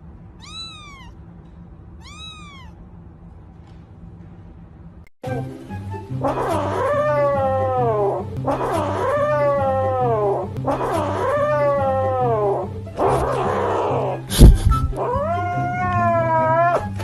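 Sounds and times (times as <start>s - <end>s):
kitten meowing: 0.4s - 1.2s, 2.0s - 2.8s, 15.0s - 17.0s
background music with bass line: 5.2s - 17.0s.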